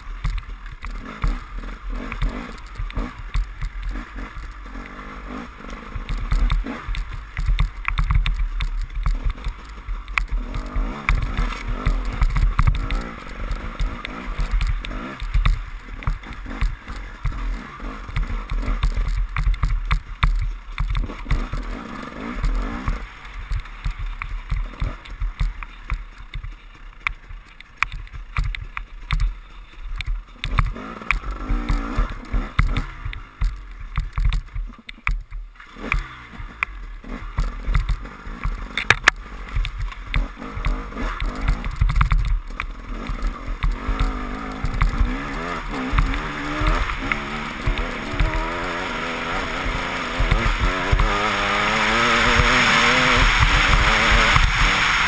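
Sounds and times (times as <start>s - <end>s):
motorcycle engine revving: 0.0s - 55.0s
knocks and rattles: 5.6s - 36.1s, 37.4s - 55.0s.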